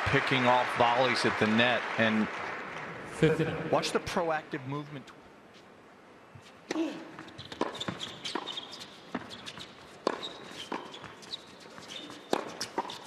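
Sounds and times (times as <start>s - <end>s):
shoes squeaking on hard court: 6.4s - 13.0s
tennis racket hitting ball: 7.4s - 13.0s.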